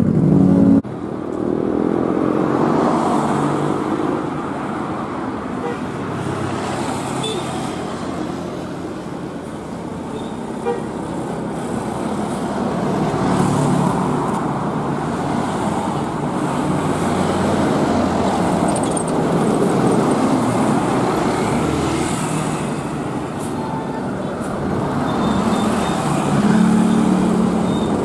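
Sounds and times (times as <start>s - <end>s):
traffic noise: 0.0s - 28.0s
bus engine running: 7.8s - 28.0s.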